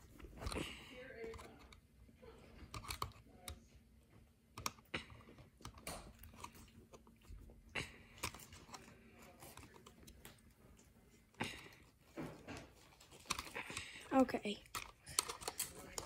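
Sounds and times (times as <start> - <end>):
screwdriver clicking on plastic: 2.6 - 3.6, 4.6 - 4.9, 14.6 - 16.0.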